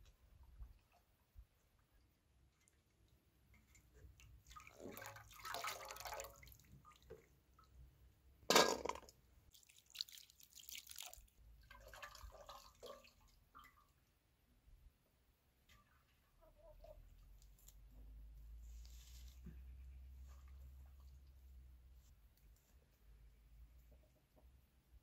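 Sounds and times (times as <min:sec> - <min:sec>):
water splashing from a jug: 0:03.4 - 0:07.7, 0:08.5 - 0:14.0.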